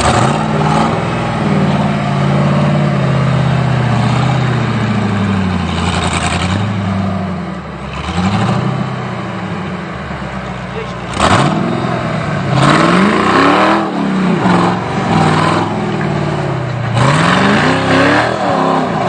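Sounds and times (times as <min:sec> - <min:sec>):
buggy engine revving hard: 0:00.0 - 0:09.7, 0:11.0 - 0:19.0.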